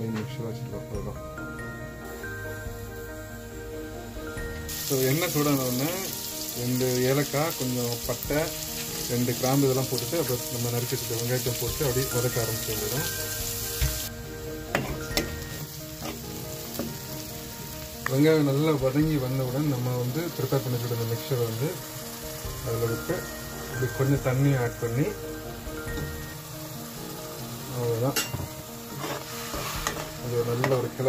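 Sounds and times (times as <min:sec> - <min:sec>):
onions sizzling in hot oil: 0:01.4 - 0:31.0
metal ladle scraping a pan: 0:28.2 - 0:30.8.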